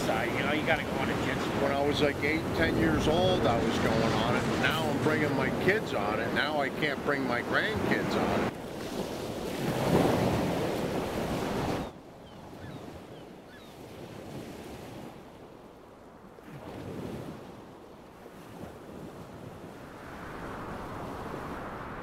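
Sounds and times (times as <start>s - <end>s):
ocean waves breaking: 0.0s - 22.0s
wind on microphone: 16.4s - 22.0s.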